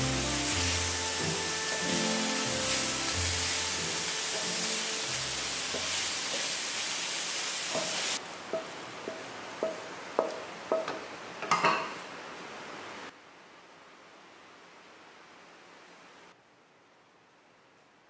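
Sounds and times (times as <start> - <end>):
food sizzling in a wok: 0.0 - 11.2.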